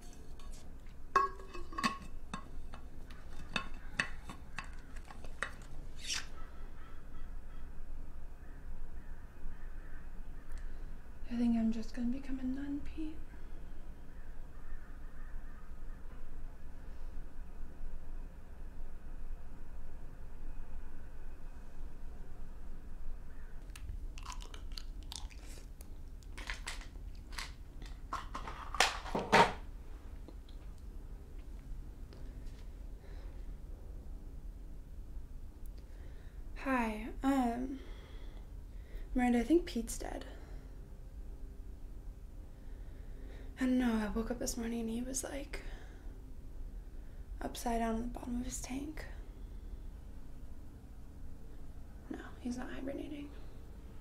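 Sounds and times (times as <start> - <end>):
metal water bottle clinking: 0.0 - 5.7.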